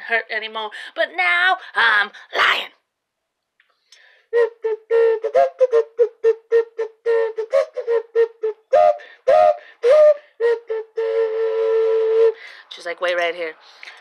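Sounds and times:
novelty whistle toots: 3.9s - 12.8s.

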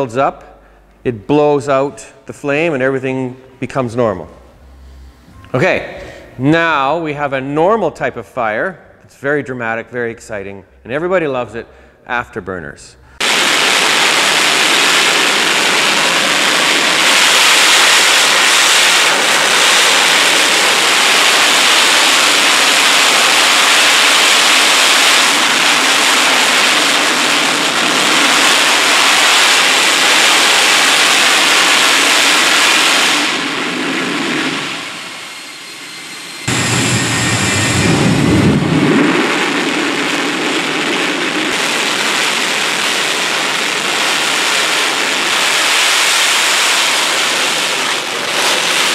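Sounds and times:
jet engine roaring: 13.2s - 48.9s.

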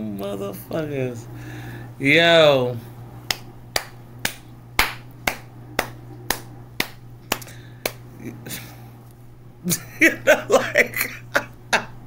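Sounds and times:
person snapping fingers: 3.3s - 8.1s.

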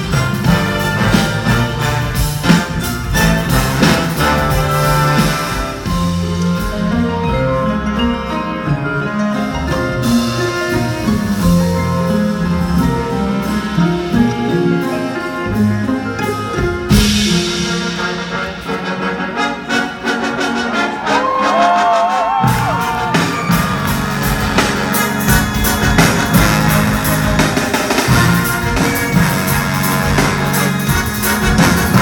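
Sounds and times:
orchestra playing: 0.0s - 32.0s.

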